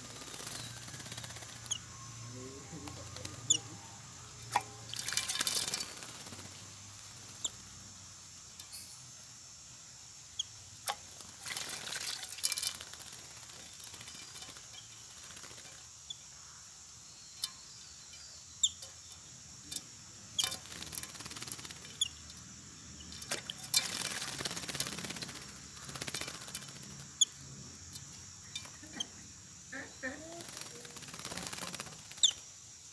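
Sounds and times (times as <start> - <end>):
high bird chirps: 0.0 - 6.1
birds splashing in water: 4.5 - 7.4, 10.8 - 15.8, 23.2 - 27.2, 30.4 - 32.3.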